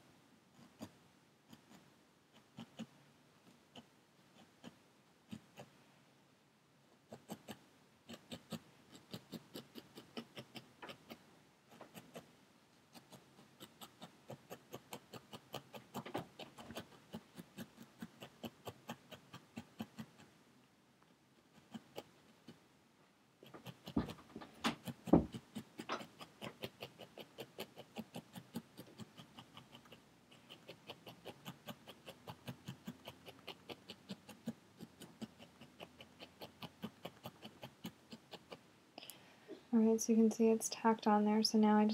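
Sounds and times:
felting needle stabbing into foam: 23.5s - 38.5s.

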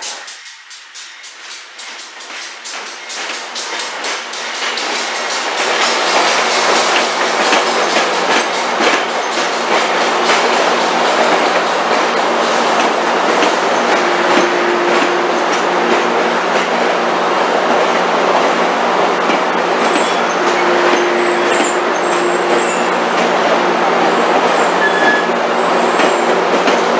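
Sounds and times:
train wheels clicking over rail joints: 0.0s - 26.9s
higher steady tone: 13.9s - 16.3s.

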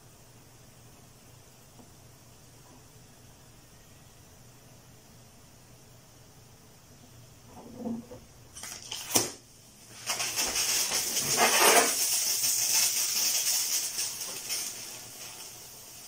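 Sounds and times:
gas hissing from bottle: 9.9s - 16.0s.

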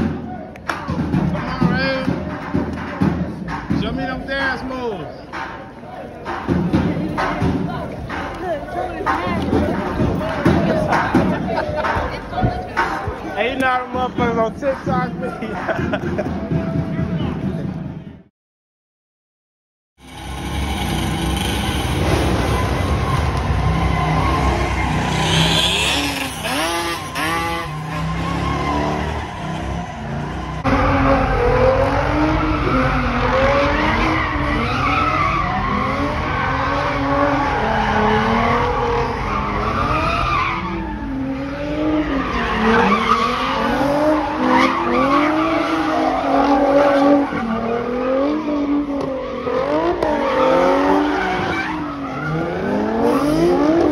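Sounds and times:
car engines revving: 20.0s - 53.9s
tyres squealing on pavement: 20.1s - 31.5s, 32.1s - 53.8s.

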